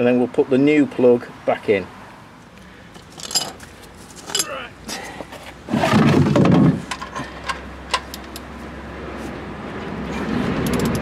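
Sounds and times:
socket wrench clicks: 0:10.6 - 0:11.0.

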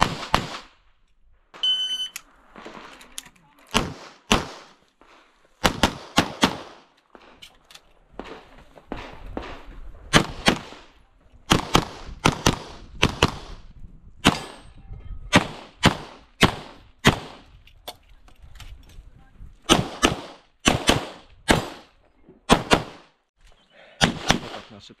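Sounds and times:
pistol shots with echo: 0:00.0 - 0:00.8, 0:03.7 - 0:04.8, 0:05.6 - 0:06.8, 0:11.5 - 0:13.6, 0:14.2 - 0:14.6, 0:15.3 - 0:17.4, 0:19.7 - 0:21.9, 0:24.0 - 0:24.8.

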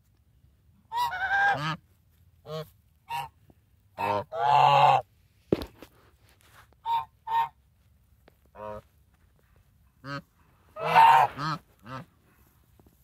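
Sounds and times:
geese honking: 0:00.9 - 0:01.8, 0:02.4 - 0:05.0, 0:06.8 - 0:07.6, 0:08.5 - 0:08.9, 0:10.0 - 0:12.1.

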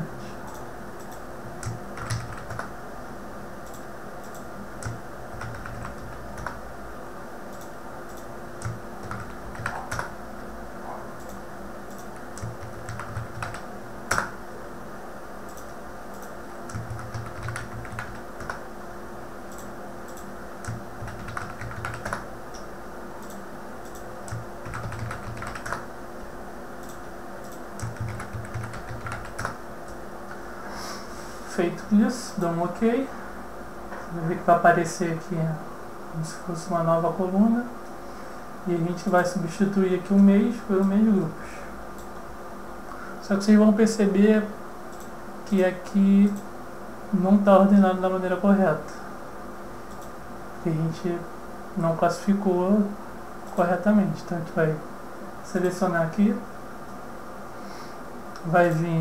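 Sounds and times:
faint steady hum: 0:00.0 - 0:59.0
computer keyboard typing: 0:00.5 - 0:02.7, 0:03.7 - 0:06.6, 0:07.6 - 0:10.2, 0:11.2 - 0:14.4, 0:15.5 - 0:18.6, 0:19.5 - 0:22.3, 0:23.2 - 0:25.9, 0:26.8 - 0:30.0.

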